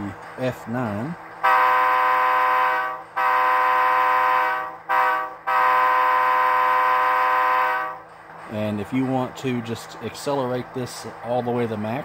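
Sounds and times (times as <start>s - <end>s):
locomotive air horn blasts: 1.4s - 8.1s.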